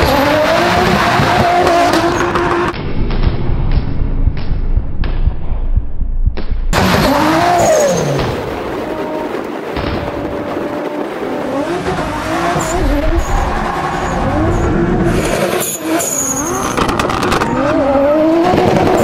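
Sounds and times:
tyre squeal: 0:07.0 - 0:08.2, 0:12.6 - 0:16.8.

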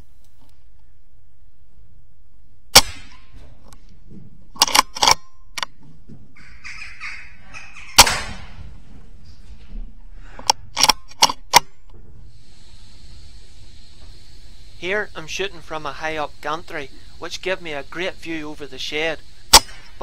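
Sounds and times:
air rifle shot: 0:02.7 - 0:03.3, 0:08.0 - 0:08.6, 0:19.5 - 0:20.0.

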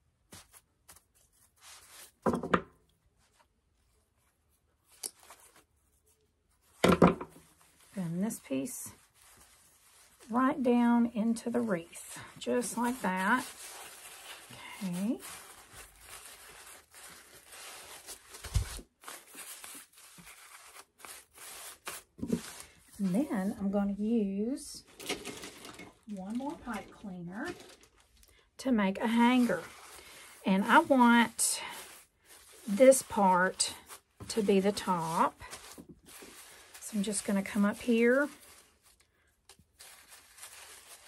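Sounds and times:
plastic strips rustling: 0:00.3 - 0:02.3, 0:03.2 - 0:23.8, 0:24.6 - 0:41.0.

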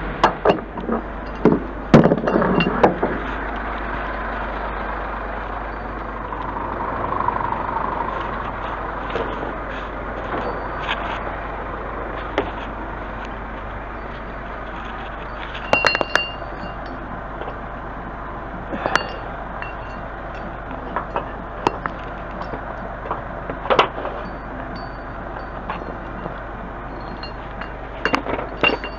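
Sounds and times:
truck engine humming: 0:00.0 - 0:28.9
metal hooks clinking: 0:26.9 - 0:28.9.

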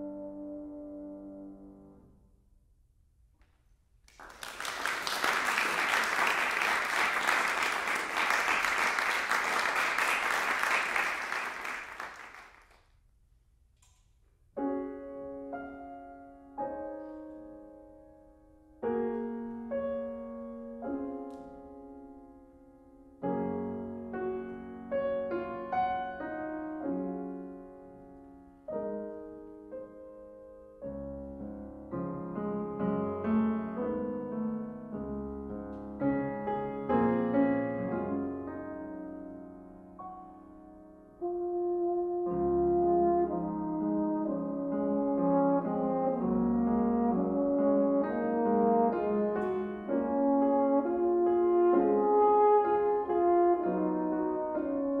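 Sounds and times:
grand piano chords: 0:00.0 - 0:02.6, 0:14.4 - 0:55.0
audience applauding: 0:04.1 - 0:12.8.

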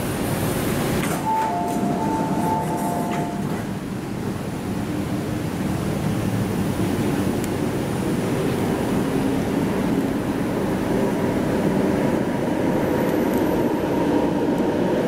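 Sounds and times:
low rumble of stopped train: 0:00.0 - 0:15.0
train doors clunking: 0:00.7 - 0:04.4
two-tone door chime: 0:01.1 - 0:03.7.

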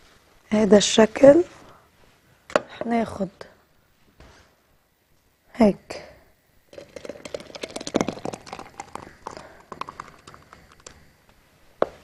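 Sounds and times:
jam pouring into glass jar: 0:06.7 - 0:11.0.

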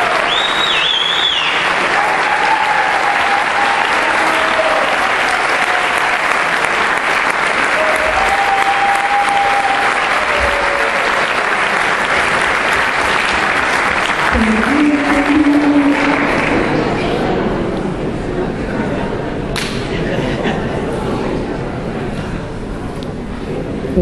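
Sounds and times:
audience applauding: 0:00.0 - 0:17.4
high whistle: 0:00.2 - 0:01.6.

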